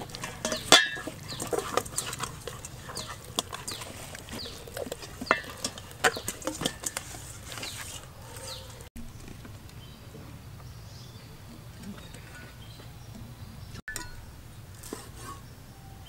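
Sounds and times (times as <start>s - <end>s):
birds chirping: 0.0s - 14.7s.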